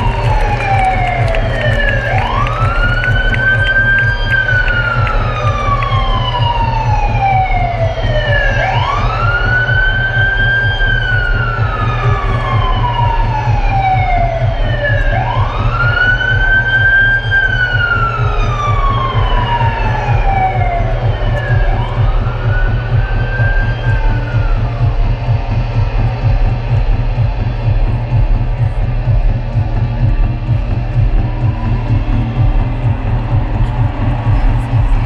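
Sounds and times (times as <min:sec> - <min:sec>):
siren-like wailing effect: 0:00.0 - 0:25.4
heavy pulsing bass: 0:00.0 - 0:35.0.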